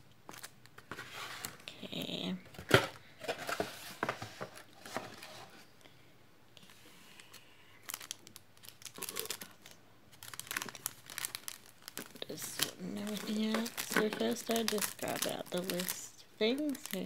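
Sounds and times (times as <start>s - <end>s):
plastic packaging crinkling: 0.3s - 1.9s, 6.7s - 17.0s.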